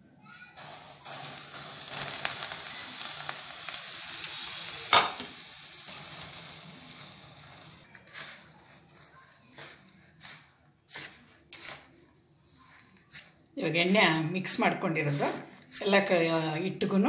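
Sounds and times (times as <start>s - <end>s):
hot oil sizzling: 0.6s - 8.4s.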